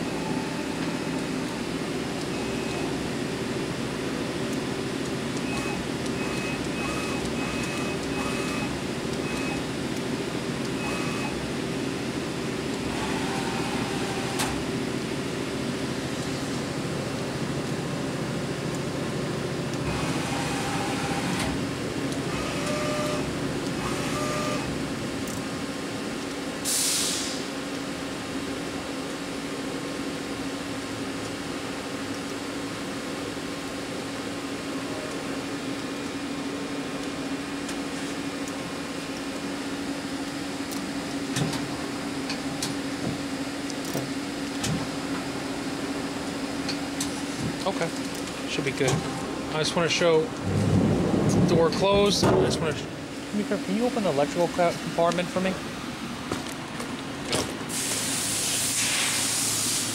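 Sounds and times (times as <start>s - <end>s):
brief hiss: 26.7s - 27.5s, 57.7s - 59.9s.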